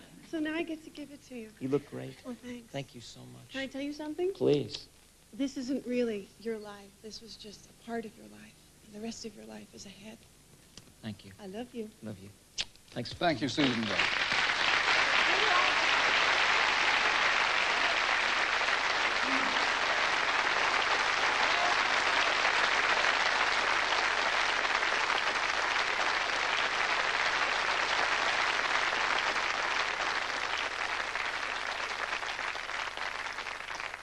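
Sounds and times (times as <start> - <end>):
audience applauding: 13.2 - 34.0.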